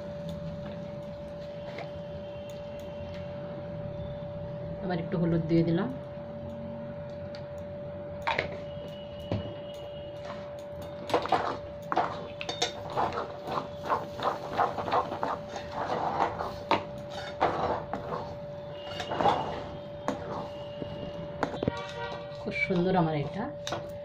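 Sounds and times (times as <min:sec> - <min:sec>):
metal spatula scraping a metal pan: 0:11.2 - 0:20.7, 0:21.5 - 0:22.6.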